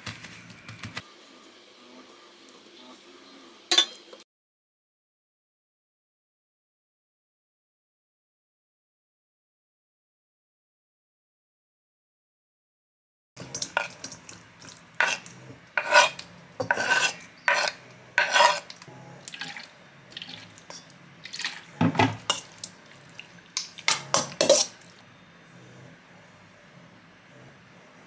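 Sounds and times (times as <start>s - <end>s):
knife scraping cutting board: 13.4s - 14.1s, 14.7s - 19.5s, 23.8s - 24.9s
spoon knocking metal bowl: 23.6s - 24.7s.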